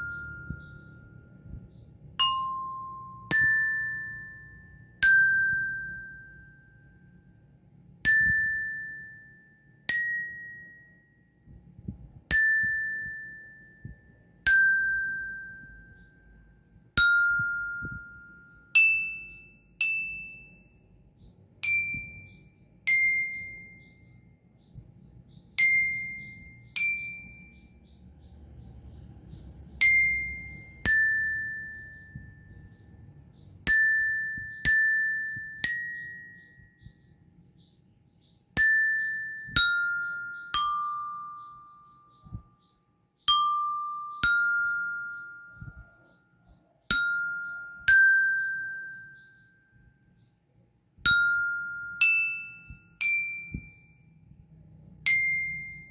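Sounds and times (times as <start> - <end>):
bell lyre notes: 0.0 - 7.1, 11.8 - 16.2, 21.6 - 24.2, 29.7 - 37.0, 38.5 - 46.0, 46.9 - 49.6, 51.1 - 54.1.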